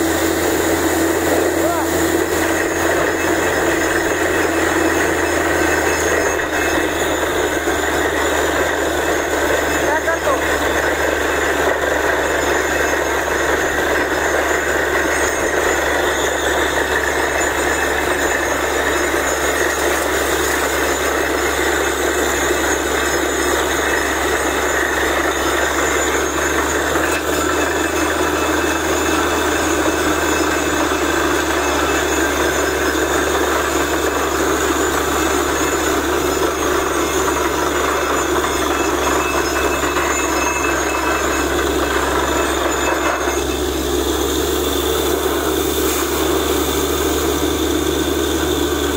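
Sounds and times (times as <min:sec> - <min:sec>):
drilling rig engine hum: 0:00.0 - 0:48.9.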